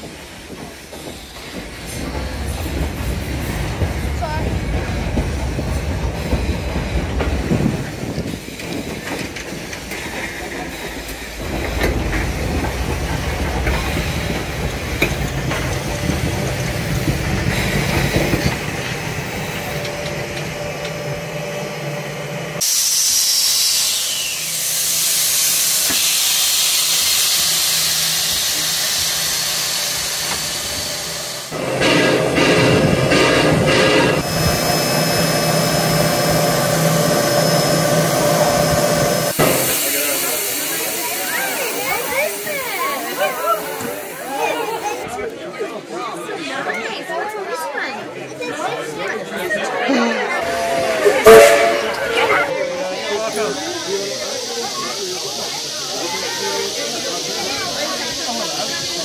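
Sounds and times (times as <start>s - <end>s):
clicks of train: 0.0s - 21.2s, 22.6s - 34.8s, 38.6s - 44.2s, 50.4s - 52.5s
steam hissing: 0.0s - 45.0s, 50.4s - 59.0s
steam train rumbling on rails: 0.0s - 45.2s, 50.0s - 59.0s.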